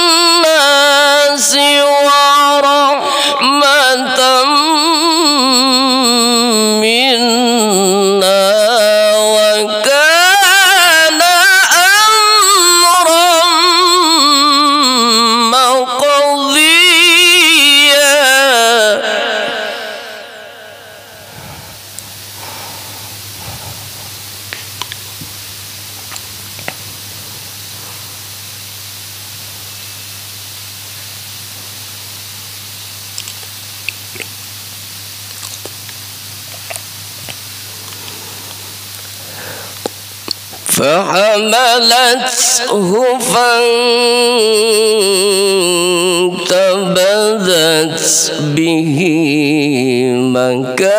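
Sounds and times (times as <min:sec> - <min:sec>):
man reciting melodically: 0:00.0 - 0:22.8, 0:40.6 - 0:50.9
microphone hiss and hum: 0:00.0 - 0:50.9.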